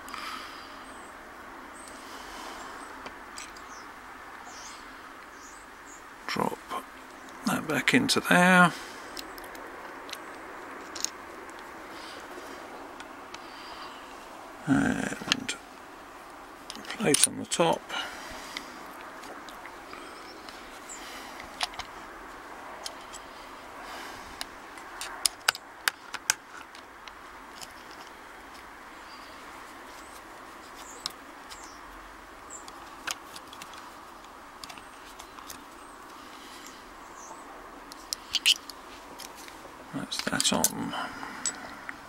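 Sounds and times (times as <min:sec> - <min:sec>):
background hiss: 0:00.0 - 0:42.0
metallic clicks of padlock: 0:38.0 - 0:39.3.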